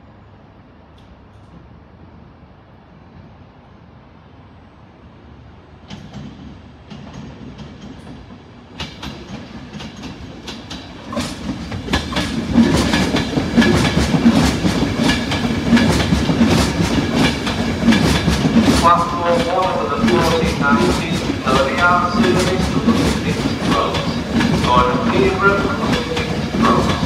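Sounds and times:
train wheels clattering over joints: 0:05.9 - 0:27.0.

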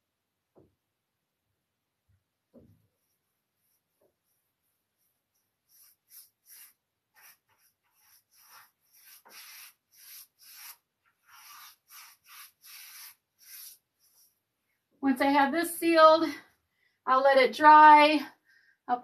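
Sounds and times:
paintbrush swishing on wood: 0:03.0 - 0:14.4.

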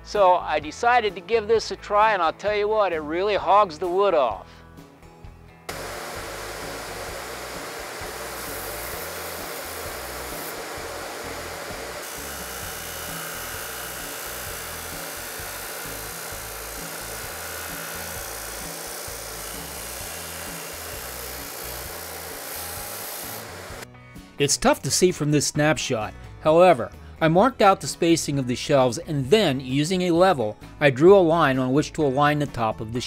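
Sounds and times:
sanding disc grinding wood: 0:05.7 - 0:23.8.

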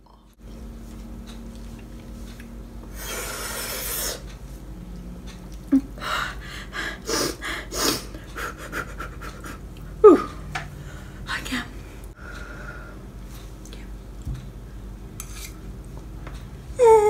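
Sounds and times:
hissing breath through mouth: 0:02.9 - 0:04.2
person breathing hard: 0:02.9 - 0:04.2, 0:06.0 - 0:13.1
short sniffs and huffs: 0:02.9 - 0:04.3.

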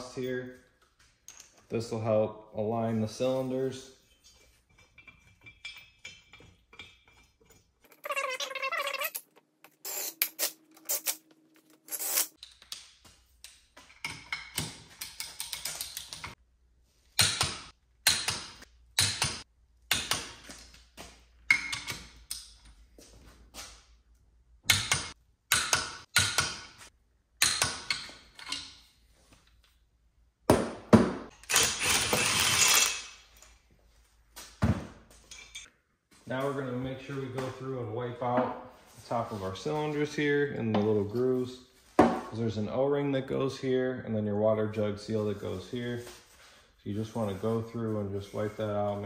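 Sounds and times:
metal tools clinking: 0:04.0 - 0:08.4, 0:35.2 - 0:35.7
metal parts rattling: 0:31.4 - 0:33.1.

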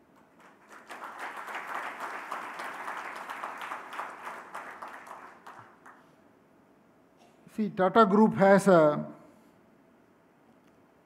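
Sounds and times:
audience applauding: 0:00.2 - 0:06.1.

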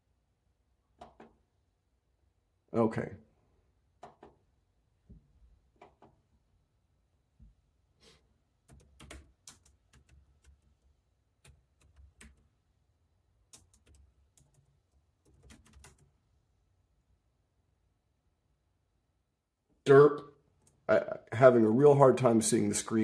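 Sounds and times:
typing on laptop keyboard: 0:08.6 - 0:12.6, 0:13.5 - 0:16.1.

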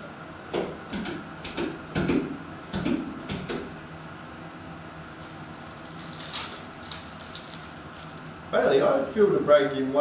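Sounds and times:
plastic wrapper crinkling: 0:05.2 - 0:08.4.

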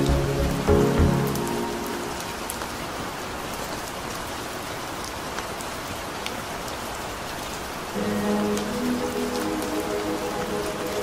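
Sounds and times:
raindrops ticking close by: 0:00.0 - 0:11.0
steady rain hiss: 0:00.0 - 0:11.0.

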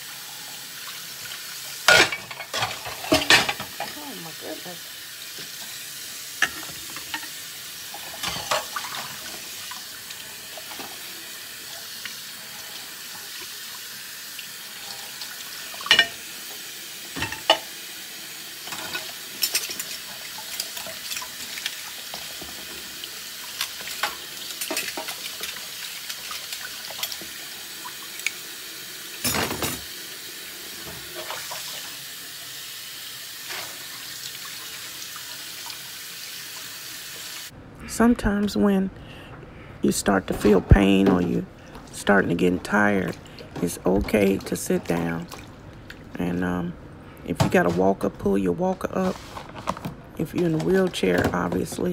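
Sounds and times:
faucet running into sink: 0:00.0 - 0:37.5
dishes clinking and knocking: 0:01.8 - 0:04.0, 0:06.4 - 0:07.4, 0:08.0 - 0:09.4, 0:15.8 - 0:16.2, 0:17.2 - 0:17.7, 0:29.2 - 0:29.9.

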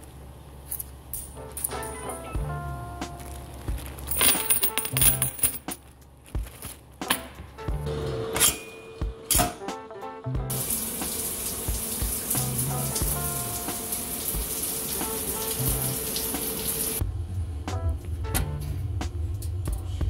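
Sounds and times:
background music: 0:01.4 - 0:05.7, 0:07.0 - 0:20.0
water running: 0:10.5 - 0:17.0.

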